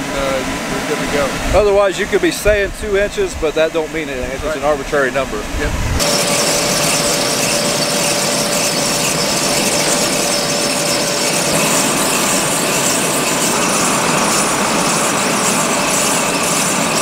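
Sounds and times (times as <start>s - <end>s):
planter rushing through stubble: 6.0s - 17.0s.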